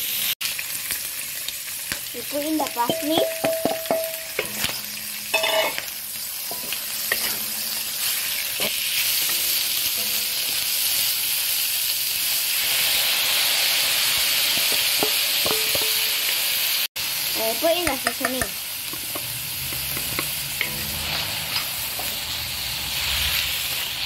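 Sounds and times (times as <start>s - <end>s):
vegetables sizzling in a wok: 0.0s - 24.0s
spatula knocking against wok: 2.6s - 5.8s, 14.6s - 16.2s, 17.8s - 20.9s.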